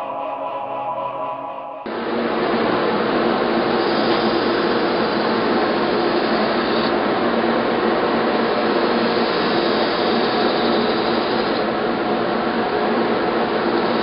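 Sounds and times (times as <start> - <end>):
thin high whine: 0.0 - 2.8.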